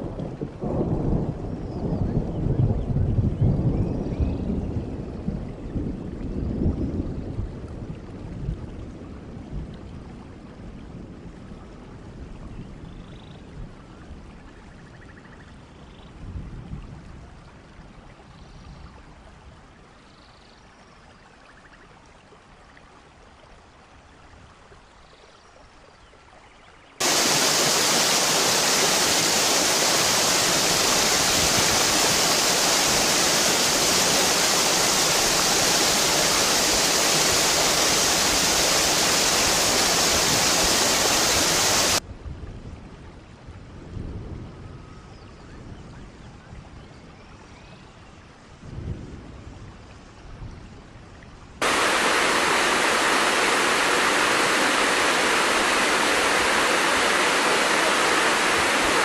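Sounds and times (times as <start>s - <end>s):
faint water flow: 7.1s - 42.0s, 49.7s - 59.0s
waterfall rushing: 27.0s - 42.0s, 51.6s - 59.0s.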